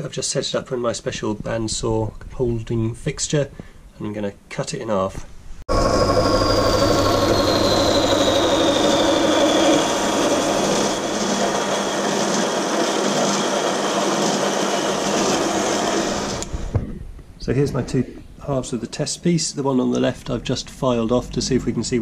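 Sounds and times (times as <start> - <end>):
bandsaw cutting metal: 5.7 - 16.6
high whine: 5.7 - 18.3.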